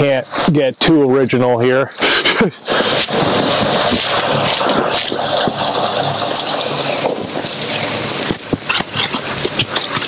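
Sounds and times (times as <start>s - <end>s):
waterfall rushing: 2.0s - 10.0s
ice knocks and crunches: 2.7s - 10.0s.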